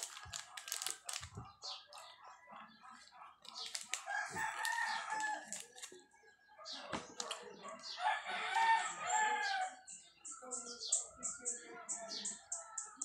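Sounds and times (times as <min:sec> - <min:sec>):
foil wrapper crinkling: 0:00.0 - 0:01.5, 0:03.4 - 0:06.0
crunchy chewing: 0:00.0 - 0:02.1, 0:02.9 - 0:06.0, 0:07.1 - 0:08.8
rooster crowing: 0:04.1 - 0:05.5, 0:08.0 - 0:09.8.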